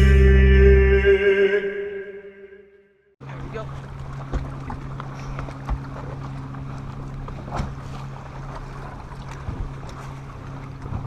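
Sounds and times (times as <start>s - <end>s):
water noise: 3.2s - 11.0s
wind: 3.2s - 11.0s.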